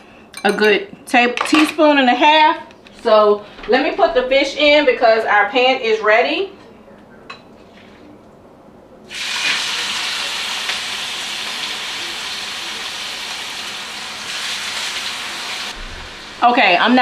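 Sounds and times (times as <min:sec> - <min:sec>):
fish sizzling in a frying pan: 0:09.1 - 0:16.5.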